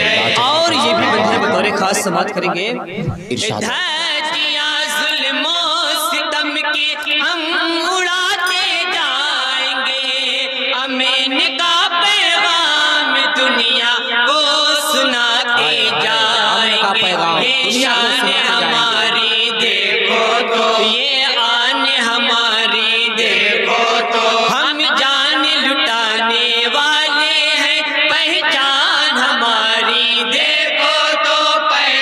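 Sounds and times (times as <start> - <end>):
men chanting together: 0.0 - 2.0, 14.7 - 32.0.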